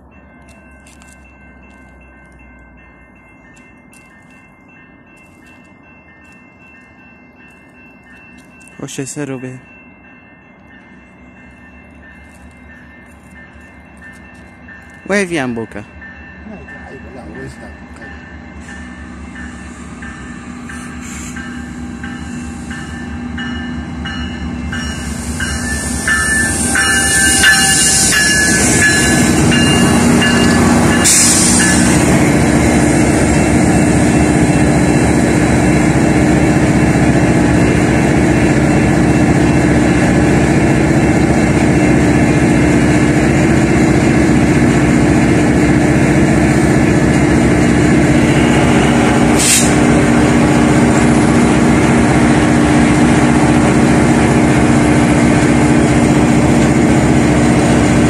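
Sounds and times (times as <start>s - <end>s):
locomotive engine rumble: 0.0s - 58.0s
brakes hissing and squealing: 20.7s - 23.1s, 24.8s - 32.2s, 48.4s - 50.0s
regular bell ringing: 21.4s - 32.0s.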